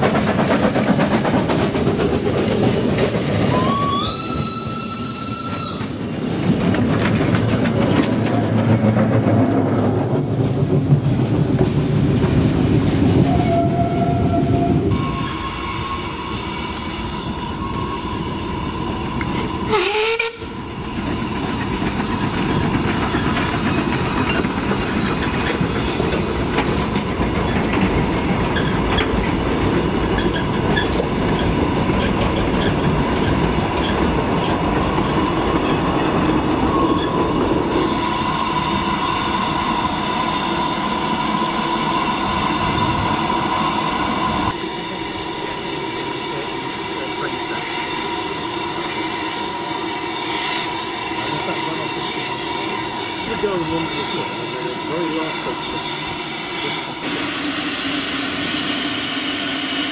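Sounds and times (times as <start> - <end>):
steam train passing: 0.0 - 59.9
train whistle: 3.5 - 6.0, 13.2 - 20.6, 57.0 - 59.9
wheels clattering over rail joints: 5.8 - 14.0, 21.0 - 37.8.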